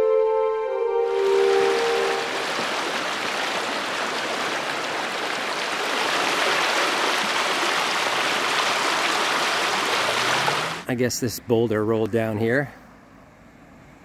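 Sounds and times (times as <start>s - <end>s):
river rushing over rocks: 1.1s - 10.8s.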